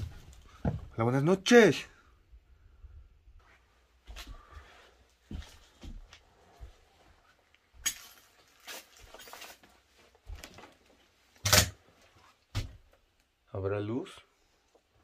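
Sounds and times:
footsteps crunching on debris: 0:05.2 - 0:11.0.

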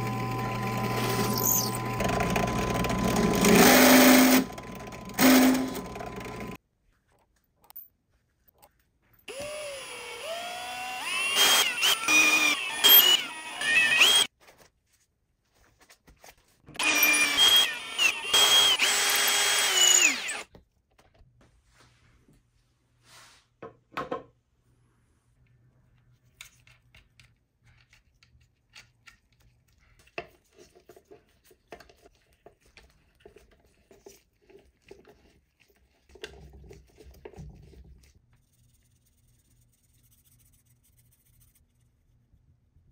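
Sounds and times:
cordless drill boring holes: 0:00.0 - 0:06.6, 0:09.3 - 0:14.3, 0:16.7 - 0:20.5
hardware clicks and knocks: 0:23.9 - 0:24.4.

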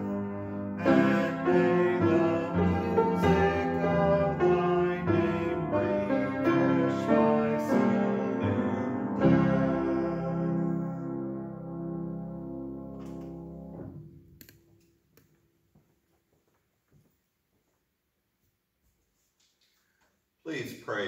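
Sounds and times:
piano playing slow hymn chords: 0:00.0 - 0:14.2.

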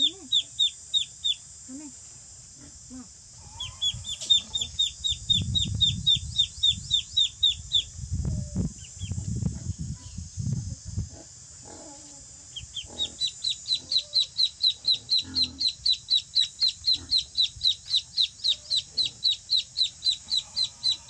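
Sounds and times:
ducklings peeping: 0:00.0 - 0:01.4, 0:03.4 - 0:08.0, 0:12.5 - 0:21.0.

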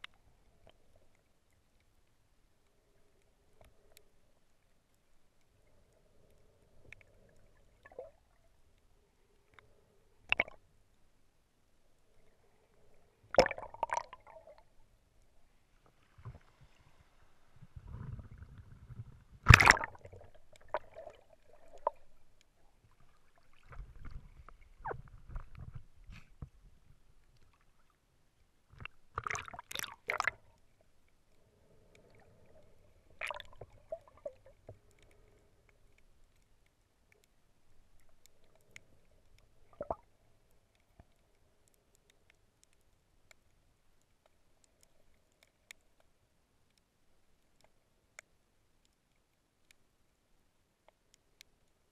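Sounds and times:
muffled underwater sloshing: 0:12.0 - 0:41.7
sharp knocks and splashes: 0:19.5 - 0:21.1.

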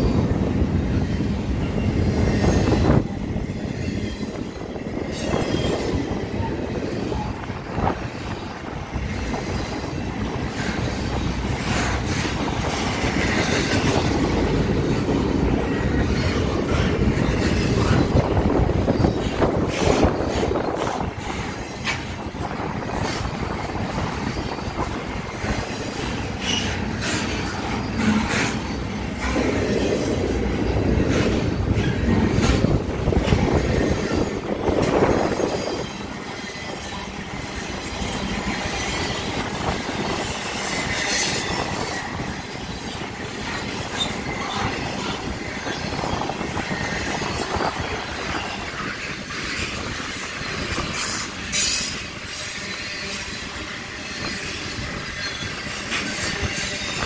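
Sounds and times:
train wheels rumbling on rail: 0:00.0 - 0:57.0
wheels clacking over rail joints: 0:00.0 - 0:57.0
wheel squeal: 0:22.9 - 0:30.1, 0:31.0 - 0:57.0.

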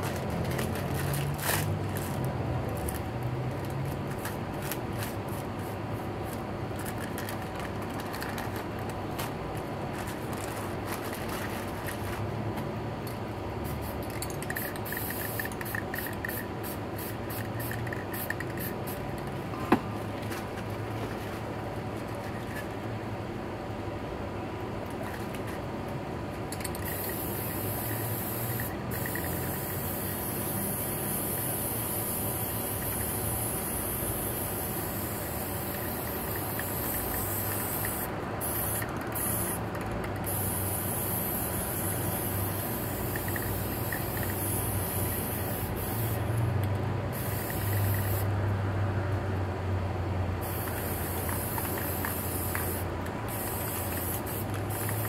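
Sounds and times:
spray paint can hissing: 0:13.6 - 0:19.2, 0:26.5 - 0:46.5, 0:47.1 - 0:48.4, 0:50.4 - 0:55.0.

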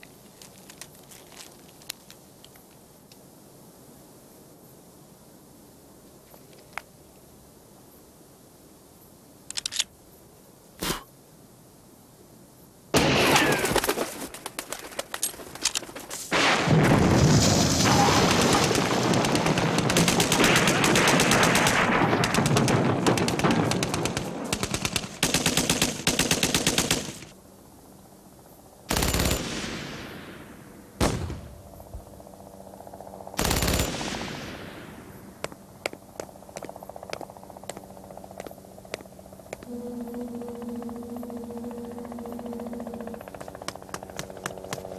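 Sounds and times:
automatic gunfire bursts: 0:18.0 - 0:27.3, 0:28.9 - 0:29.6, 0:33.4 - 0:34.3
single gunshot cracks: 0:31.0 - 0:31.6.

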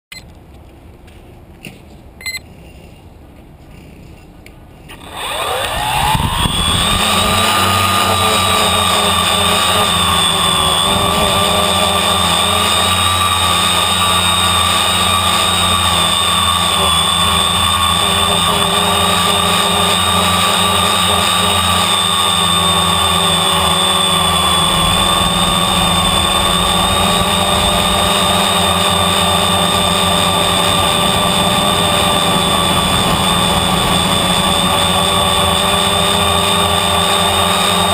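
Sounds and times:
drone propellers whining: 0:04.9 - 0:37.9.

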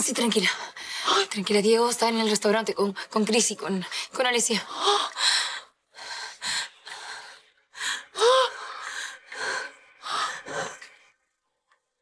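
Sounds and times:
woman gasping and sobbing: 0:04.7 - 0:10.8.

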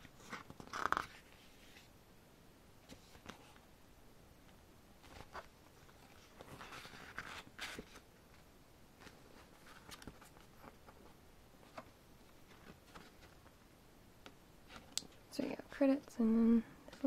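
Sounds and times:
pages rustling: 0:00.0 - 0:01.9, 0:02.8 - 0:03.7, 0:04.5 - 0:13.5.

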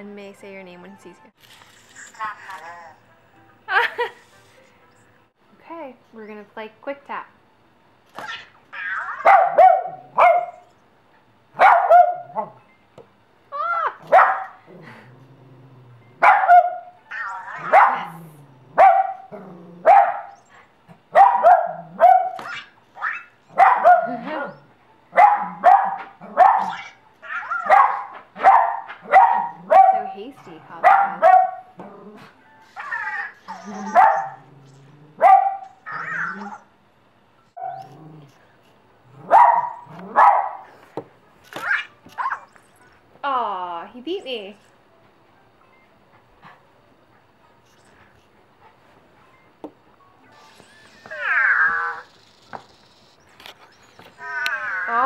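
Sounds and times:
puppy barking: 0:08.2 - 0:10.7, 0:11.6 - 0:12.6, 0:14.1 - 0:14.6, 0:16.2 - 0:18.1, 0:18.8 - 0:20.4, 0:21.1 - 0:24.4, 0:25.2 - 0:30.2, 0:30.8 - 0:31.7, 0:33.2 - 0:34.4, 0:35.2 - 0:36.6, 0:39.3 - 0:40.7.

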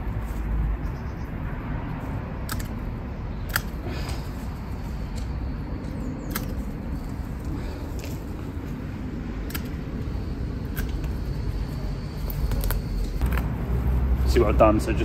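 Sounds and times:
pruning shears snipping: 0:03.4 - 0:08.2, 0:09.4 - 0:11.3.

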